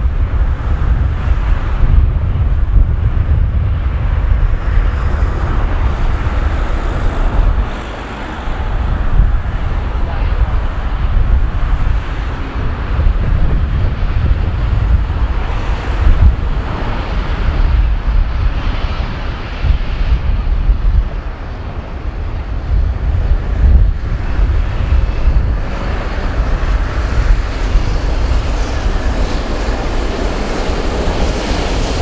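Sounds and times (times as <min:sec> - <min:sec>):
wind rumble on microphone: 0:00.0 - 0:32.0
steam locomotive approaching: 0:04.0 - 0:18.1, 0:22.4 - 0:32.0.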